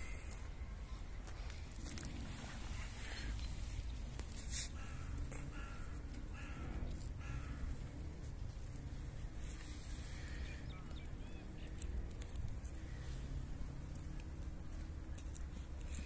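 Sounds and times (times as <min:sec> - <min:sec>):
crows cawing: 0:04.5 - 0:07.9.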